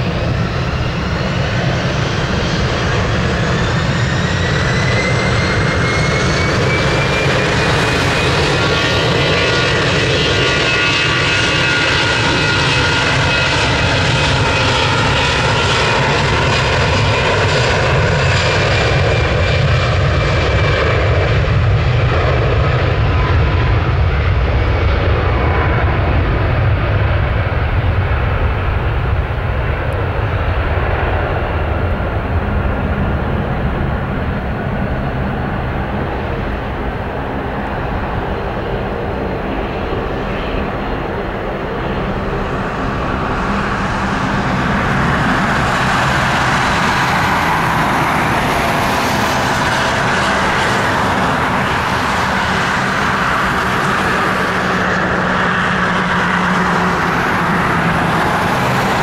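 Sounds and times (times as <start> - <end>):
jet engines roaring: 0.0 - 59.0.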